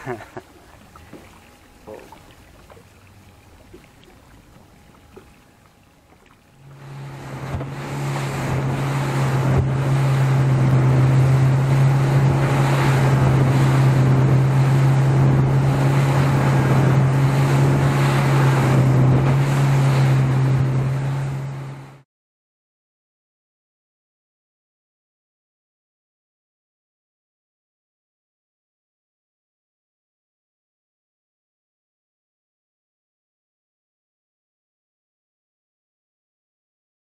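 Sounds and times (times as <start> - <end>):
water rushing along hull: 0.0 - 22.0
outboard motor drone: 0.0 - 22.1
wind buffeting microphone: 6.8 - 21.3.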